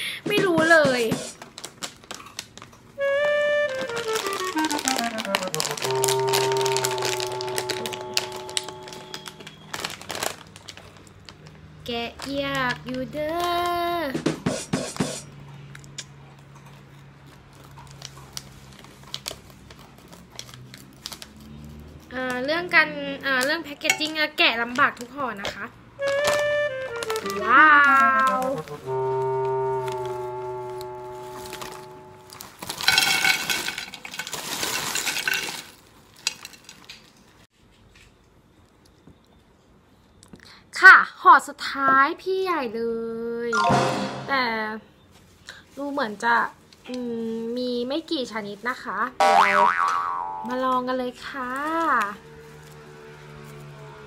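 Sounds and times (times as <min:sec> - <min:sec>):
plastic snack bag crinkling: 0:01.2 - 0:14.0, 0:16.9 - 0:22.1, 0:26.0 - 0:37.2
chips rattling onto a plate: 0:03.8 - 0:07.8, 0:32.6 - 0:37.1.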